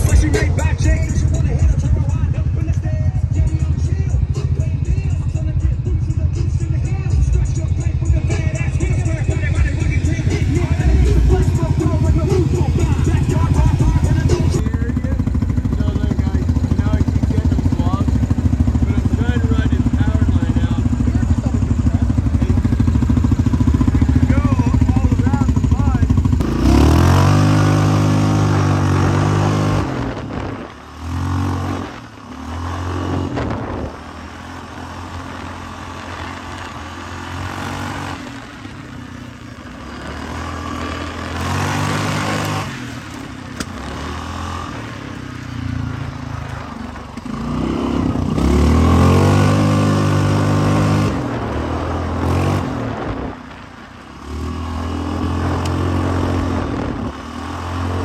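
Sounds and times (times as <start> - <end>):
off-road vehicle engine revving: 0.0 - 58.0.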